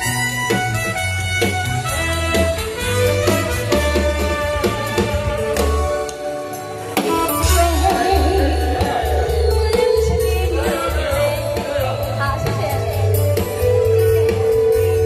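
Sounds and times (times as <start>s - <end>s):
backing track with bass beat: 0.0s - 15.0s
woman singing with vibrato: 7.4s - 13.3s.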